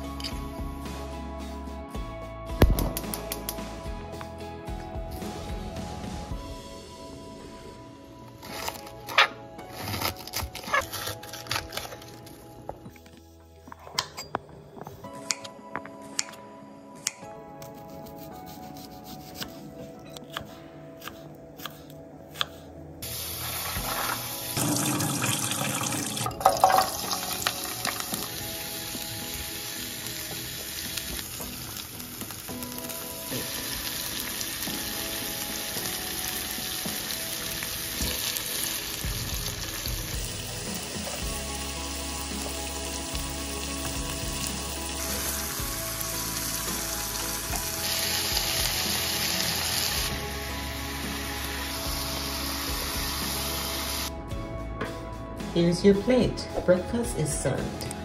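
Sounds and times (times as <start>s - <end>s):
knife slicing onion on cutting board: 17.6s - 22.7s
food sizzling in hot pan: 23.0s - 25.9s, 26.5s - 54.1s.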